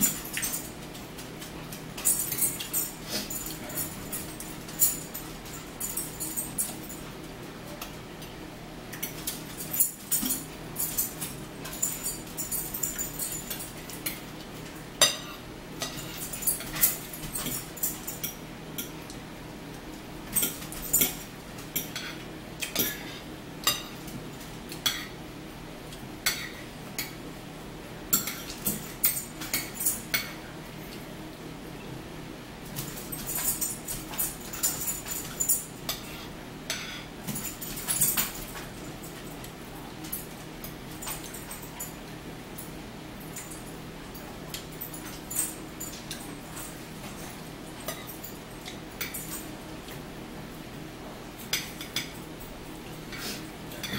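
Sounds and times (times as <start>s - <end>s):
forks clinking on plates: 0.0s - 7.1s, 8.9s - 19.1s, 20.3s - 24.1s, 24.7s - 25.1s, 28.1s - 30.4s, 32.7s - 42.0s, 43.3s - 49.6s, 51.4s - 53.9s.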